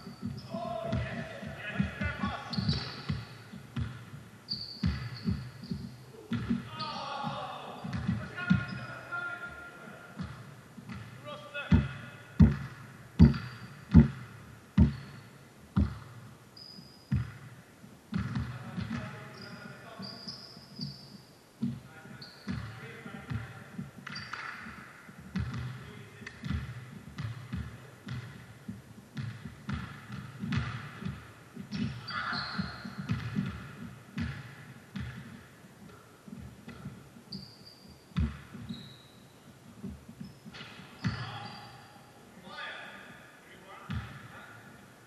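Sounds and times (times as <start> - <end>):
basketball bouncing: 0.0 - 8.8, 10.2 - 16.3, 17.1 - 19.2, 21.6 - 21.8, 22.5 - 37.1, 38.2 - 39.1, 39.7 - 41.4, 43.9 - 44.3
sneakers squeaking on floor: 0.0 - 42.3.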